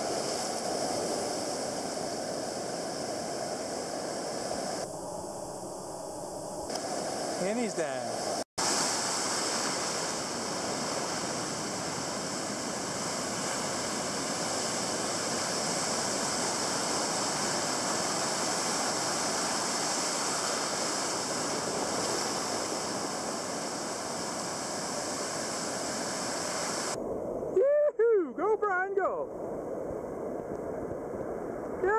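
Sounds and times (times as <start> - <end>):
breaking waves: 6.7 - 27.0.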